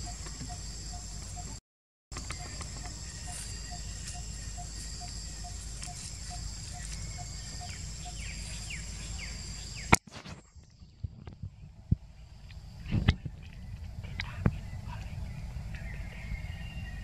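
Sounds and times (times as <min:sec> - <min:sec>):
insect drone: 0:00.0 - 0:01.6, 0:02.2 - 0:17.0
falling bird chirps: 0:02.2 - 0:10.5.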